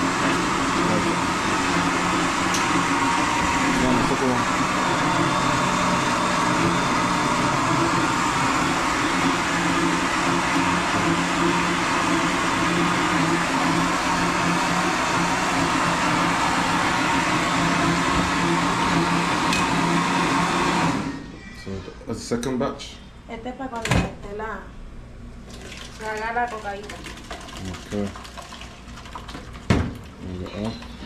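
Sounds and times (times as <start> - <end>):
electric blender running: 0.0 - 21.3.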